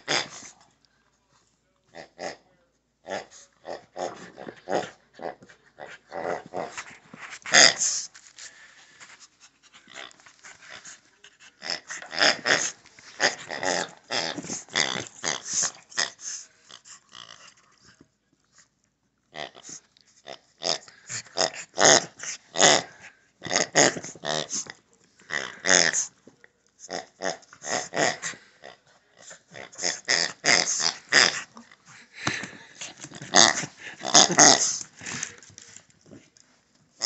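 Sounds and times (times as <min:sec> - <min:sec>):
dog growling: 0:03.0 - 0:08.0, 0:09.8 - 0:17.7, 0:19.3 - 0:26.1, 0:26.9 - 0:32.1, 0:32.7 - 0:36.3.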